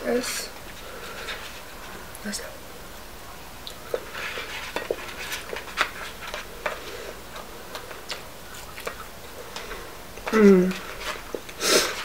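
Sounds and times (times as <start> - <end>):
chewing fries: 3.6 - 12.0.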